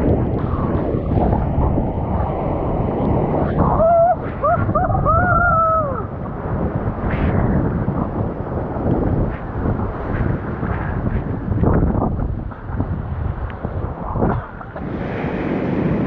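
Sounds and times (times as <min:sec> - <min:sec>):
surf rushing and churning: 0:00.0 - 0:16.0
person whooping: 0:03.6 - 0:06.1.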